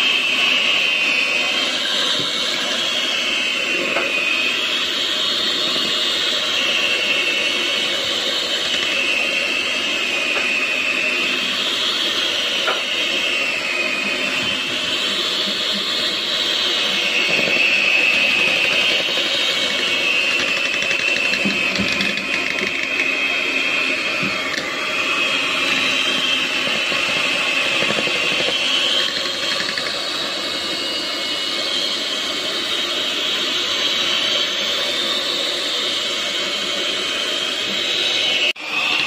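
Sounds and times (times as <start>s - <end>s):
electric hand mixer whining: 0.0s - 39.0s
beaters whipping in metal pot: 17.0s - 23.4s.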